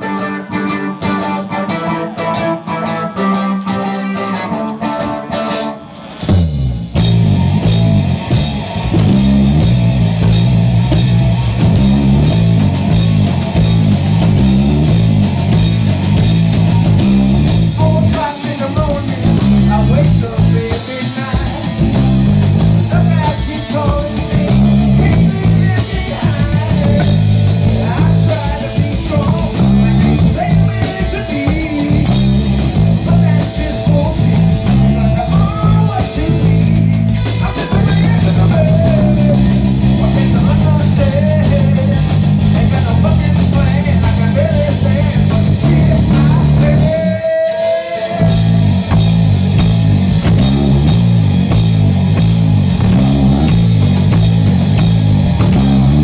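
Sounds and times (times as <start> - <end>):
electric bass line: 0.0 - 56.0
rock band playing live: 0.0 - 56.0
man singing: 17.6 - 22.0, 22.8 - 48.8.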